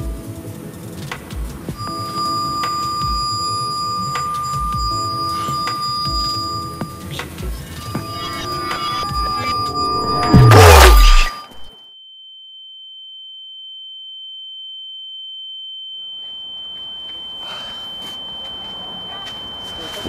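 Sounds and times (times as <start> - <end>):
steady high-pitched tone: 0.0 - 11.7, 16.1 - 20.0
whooshing transition effect: 7.8 - 11.7.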